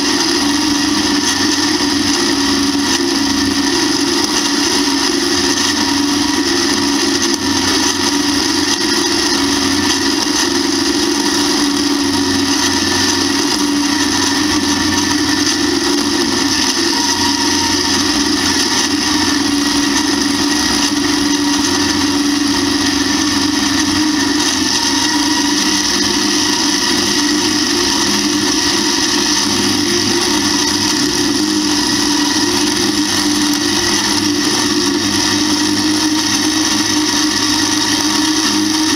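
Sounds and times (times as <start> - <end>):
corn picker whirring: 0.0 - 38.9
tractor engine running under load: 0.0 - 38.9.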